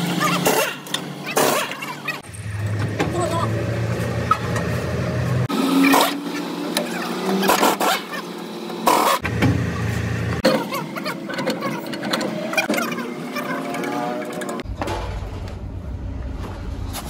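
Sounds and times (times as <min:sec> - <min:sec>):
metal clanks and scraping: 0:13.6 - 0:17.0.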